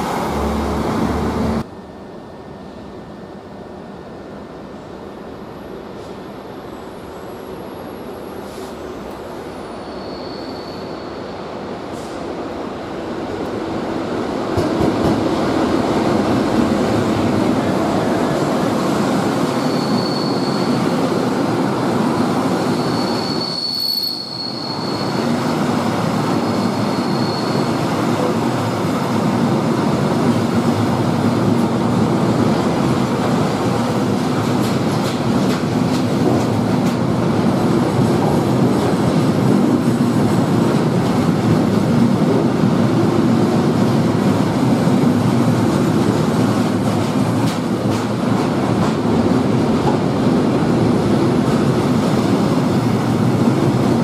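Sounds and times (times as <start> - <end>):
diesel locomotive passing: 0.0 - 2.6, 11.7 - 23.1
high wheel squeal: 9.7 - 11.2, 19.5 - 21.0, 22.6 - 25.3, 26.3 - 27.9
train wheels rumbling on rails: 11.6 - 54.0.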